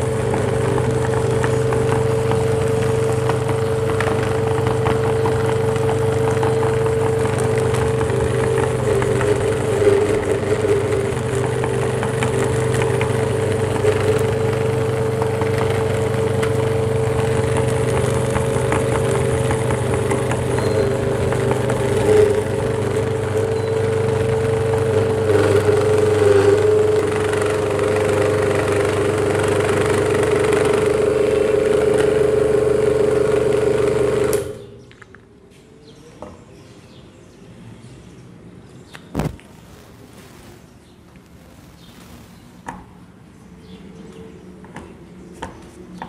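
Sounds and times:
electric meat grinder humming: 0.0 - 34.7
handling noises: 39.0 - 43.0.

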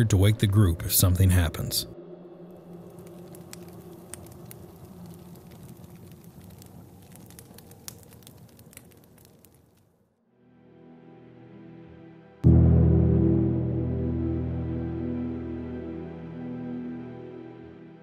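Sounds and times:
campfire crackling: 2.4 - 10.0
wood popping: 2.8 - 9.9.

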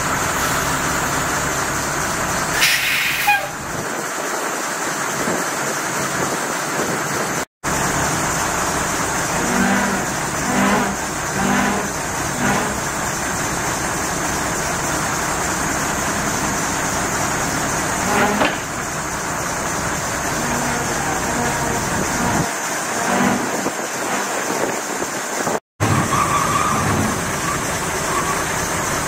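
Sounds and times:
truck engine running: 0.0 - 29.0.

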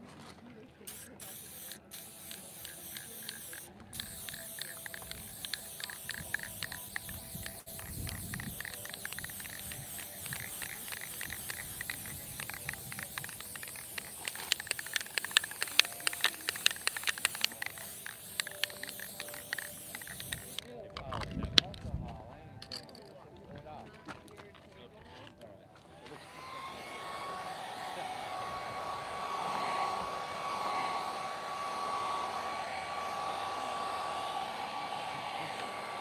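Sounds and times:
spray can clicks and spits: 0.9 - 21.7, 22.6 - 23.1
spray paint can hissing: 0.9 - 21.7, 22.6 - 23.1.

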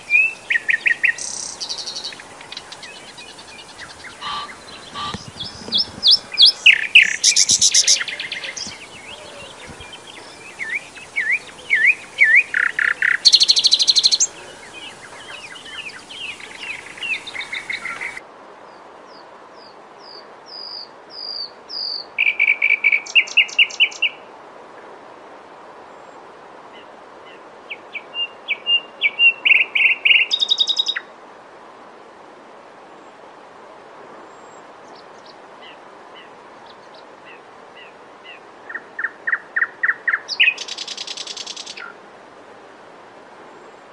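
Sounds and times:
warbler singing chattering notes: 0.0 - 18.2.

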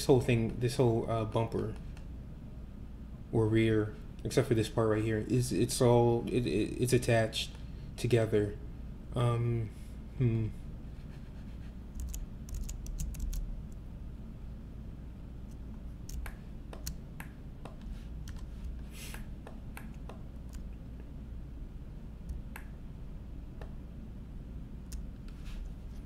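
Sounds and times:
faint low hum: 0.0 - 26.0
keyboard and mouse clicking: 12.0 - 13.5, 16.1 - 20.8.

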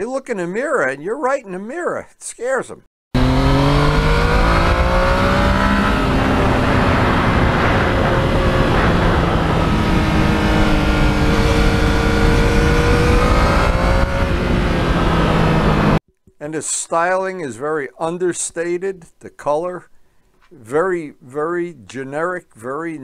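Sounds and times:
motorcycle engine running: 3.2 - 16.0
steady rushing noise: 3.4 - 16.0.

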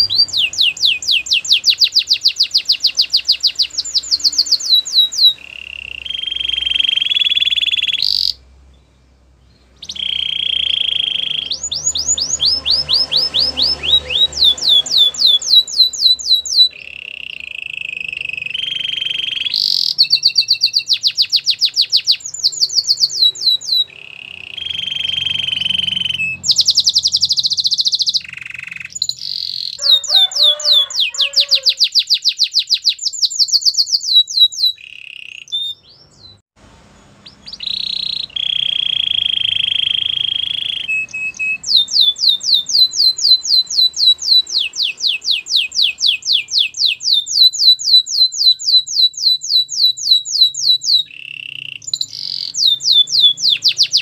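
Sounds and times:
canary singing: 0.0 - 54.0.

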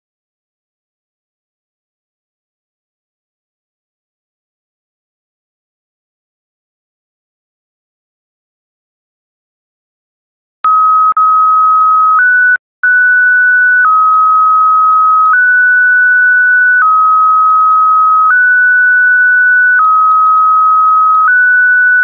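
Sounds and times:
two-pitch digital beep: 10.7 - 22.0.

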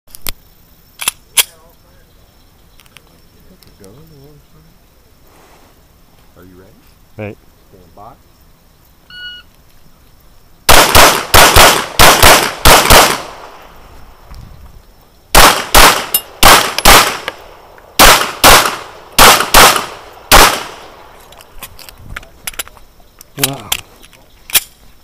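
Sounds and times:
pistol shots: 10.7 - 13.6, 15.3 - 21.0.

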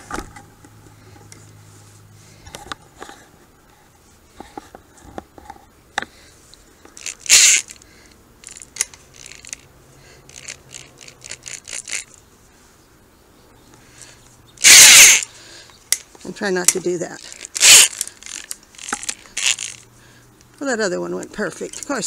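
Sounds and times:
wire clicking and scraping: 4.4 - 9.7, 10.3 - 12.2, 14.0 - 20.6
cordless drill spinning: 7.0 - 9.6, 10.2 - 12.2, 14.6 - 15.3, 17.2 - 19.8.

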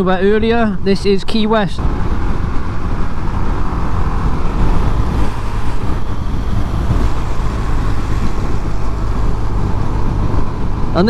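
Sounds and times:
wind and road noise: 0.0 - 11.0.

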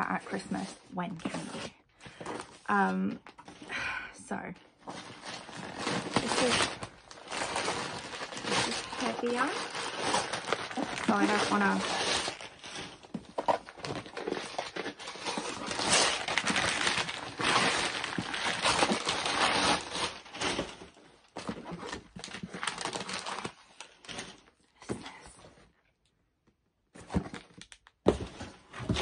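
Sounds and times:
wrapping paper tearing and crinkling: 4.9 - 24.5.

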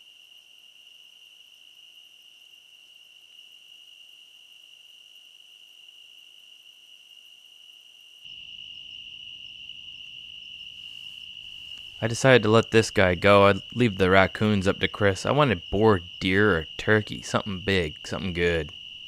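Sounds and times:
crickets trilling: 0.0 - 19.0
low hiss: 10.7 - 19.0.

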